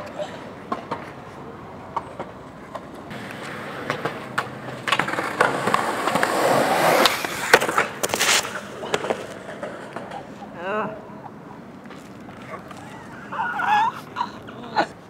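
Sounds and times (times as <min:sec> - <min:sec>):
skateboard clacks: 0:00.0 - 0:10.6
skateboard wheels rolling on concrete: 0:00.0 - 0:15.0.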